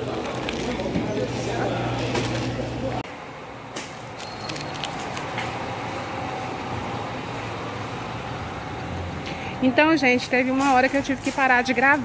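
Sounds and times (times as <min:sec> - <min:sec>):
shopping cart rattling while rolling: 0:10.2 - 0:12.0.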